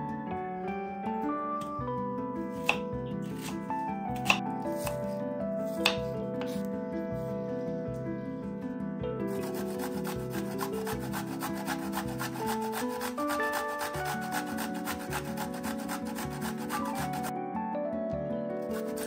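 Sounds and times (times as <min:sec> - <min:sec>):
soft background music: 0:00.0 - 0:19.0
carrot rasped on metal grater: 0:09.3 - 0:17.3, 0:18.7 - 0:19.0.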